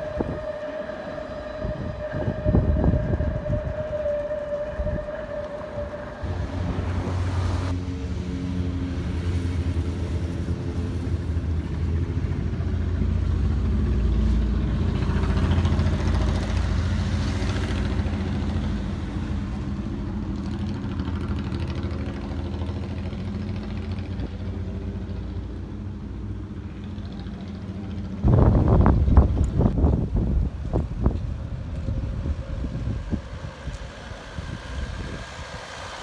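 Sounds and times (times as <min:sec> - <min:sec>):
vehicle engine rumbling: 0:00.0 - 0:36.0.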